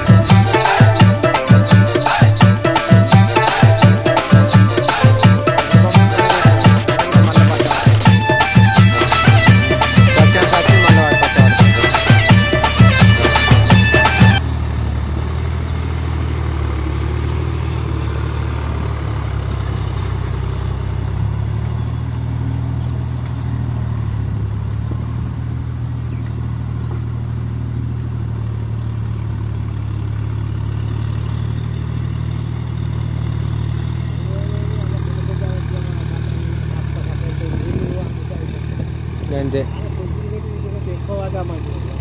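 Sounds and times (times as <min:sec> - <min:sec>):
tractor diesel engine running: 0:00.0 - 0:42.0.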